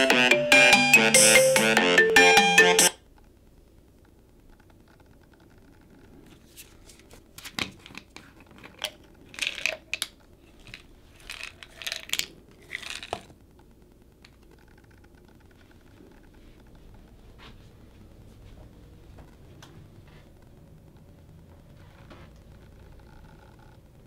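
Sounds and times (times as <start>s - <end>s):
pill bottle clicks and rattles: 7.9s - 13.4s.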